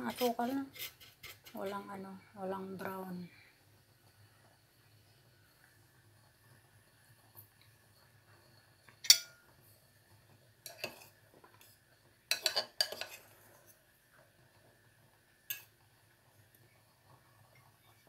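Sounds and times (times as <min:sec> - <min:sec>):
metal fork clinking against a pot: 0:09.0 - 0:09.4, 0:12.3 - 0:13.2.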